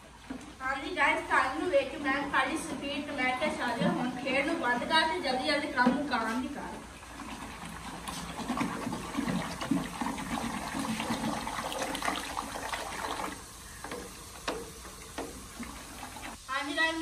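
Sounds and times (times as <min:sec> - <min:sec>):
liquid sloshing in a pot: 0:05.5 - 0:16.4.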